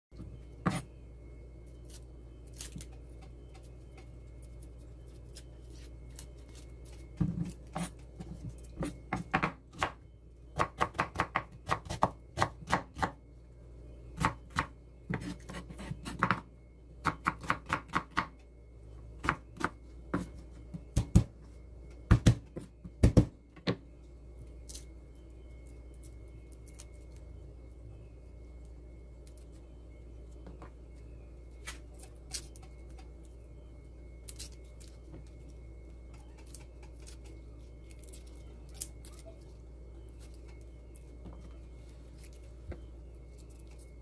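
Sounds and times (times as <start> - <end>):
low steady hum: 0.1 - 44.0.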